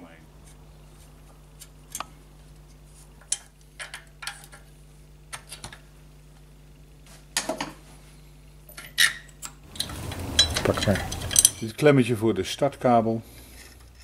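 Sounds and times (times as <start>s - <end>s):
steady low hum: 0.0s - 14.0s
metal parts clinking: 9.7s - 11.7s.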